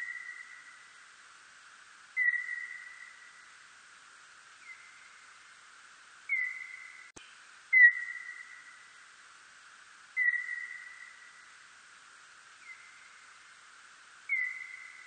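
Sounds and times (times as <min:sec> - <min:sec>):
whistle-like bat calls: 0:00.0 - 0:00.8, 0:02.2 - 0:03.4, 0:06.3 - 0:07.1, 0:07.7 - 0:08.8, 0:10.2 - 0:11.4, 0:14.3 - 0:15.0
steady hiss: 0:00.0 - 0:15.0.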